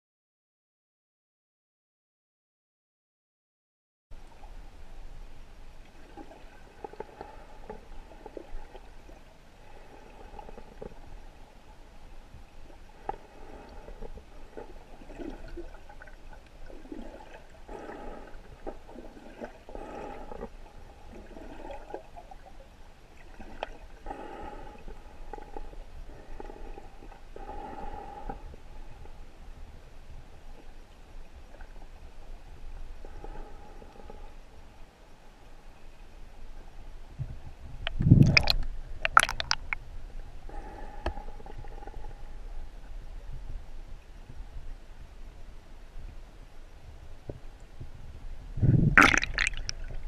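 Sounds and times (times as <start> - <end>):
underwater river gurgling: 4.2 - 47.8, 48.4 - 50.0.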